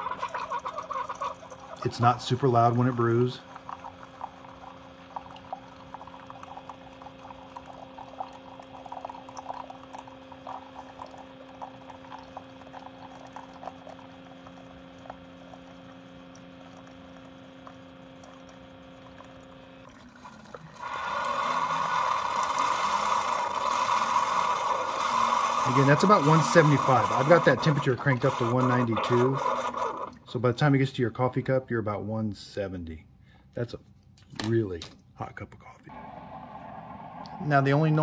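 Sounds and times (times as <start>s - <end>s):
coffee splashing into mug: 0.0s - 23.7s
low pump hum: 0.0s - 30.8s.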